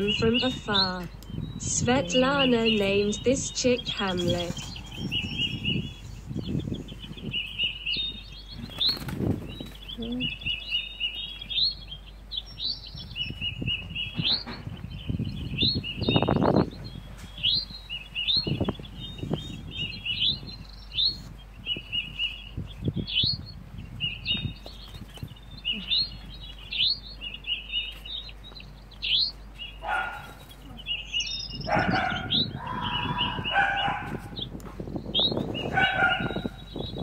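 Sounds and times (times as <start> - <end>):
bird chirping: 0.0 - 37.0.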